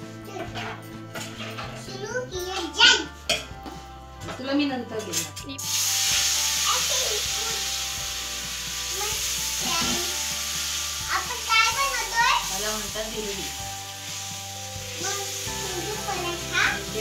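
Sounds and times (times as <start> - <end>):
batter sizzling on hot griddle: 5.6 - 17.0
voices: 15.0 - 17.0.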